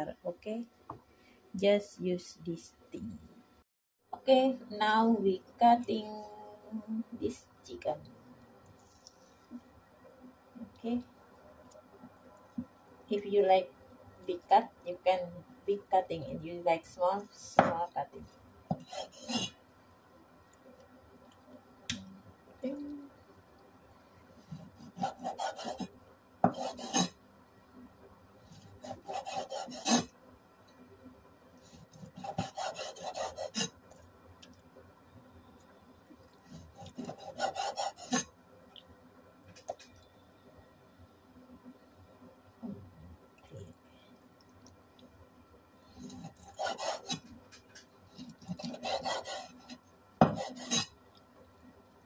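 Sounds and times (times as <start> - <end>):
cleaver cutting on wooden board: 18.7 - 19.5, 24.6 - 25.9, 26.5 - 27.2, 28.8 - 30.1, 32.0 - 33.7, 36.6 - 38.3, 46.1 - 47.3, 48.5 - 50.9.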